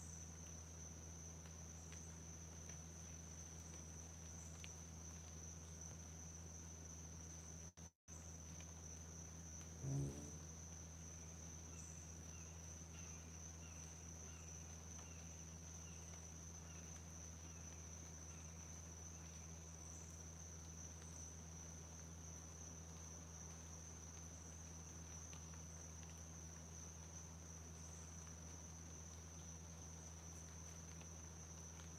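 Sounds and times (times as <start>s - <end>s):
faint chirps: 9.8s - 10.5s
low steady hum: 9.8s - 10.7s.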